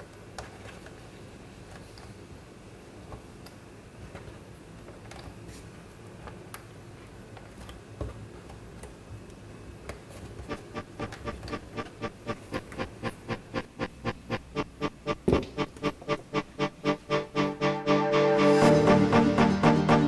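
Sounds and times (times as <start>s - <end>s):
music with repeated short notes: 10.5s - 20.0s.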